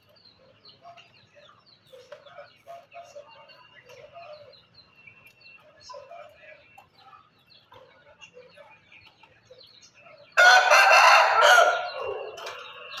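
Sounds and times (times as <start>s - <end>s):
soft clucks and chirps: 0.0s - 13.0s
rooster crowing: 10.4s - 12.5s.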